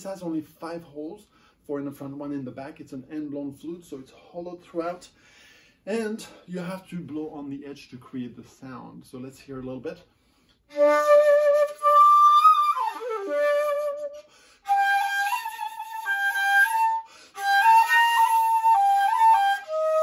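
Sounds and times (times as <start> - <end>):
player breathing: 5.2 - 5.8, 14.2 - 14.7
bamboo flute slow melody: 10.7 - 20.0.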